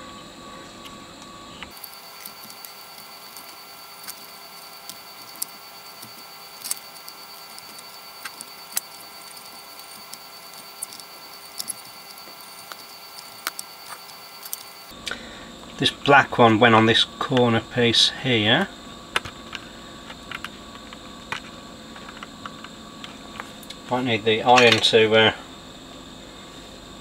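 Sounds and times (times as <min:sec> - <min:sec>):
faint steady hum: 0:00.0 - 0:27.0
soldering clicks and crackles: 0:01.7 - 0:14.9.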